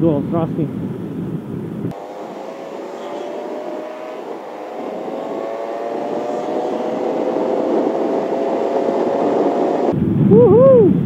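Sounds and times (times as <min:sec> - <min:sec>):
wind noise: 0:00.0 - 0:11.0
scooter engine accelerating: 0:01.9 - 0:10.0.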